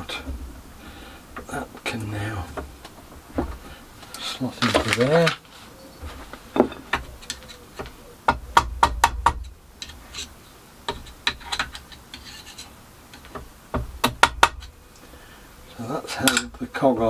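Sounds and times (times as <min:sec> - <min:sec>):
metal tools tapping on metal: 0:16.2 - 0:16.6.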